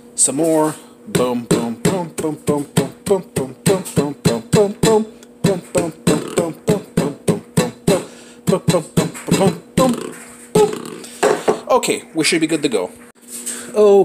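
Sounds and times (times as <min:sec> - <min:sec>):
hammer pounding nuts on countertop: 0:11.2 - 0:11.6.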